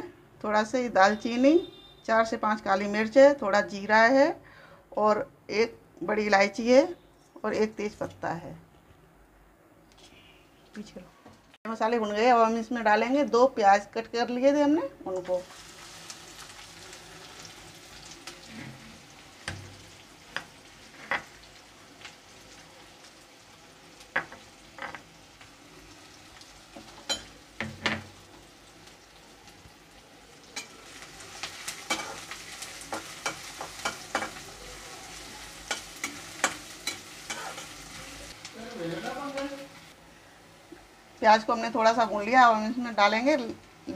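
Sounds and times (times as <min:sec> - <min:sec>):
onions sizzling in hot oil: 0:15.1 - 0:43.9
metal spatula scraping pan: 0:31.7 - 0:34.5, 0:35.6 - 0:38.0.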